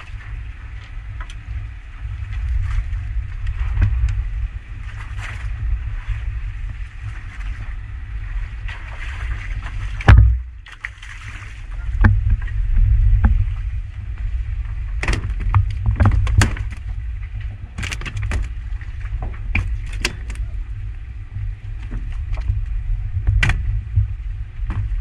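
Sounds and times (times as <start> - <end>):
low rumble of boat: 0.0 - 25.0
knocks and thumps on boat deck: 8.7 - 10.9, 11.7 - 20.4, 21.8 - 25.0.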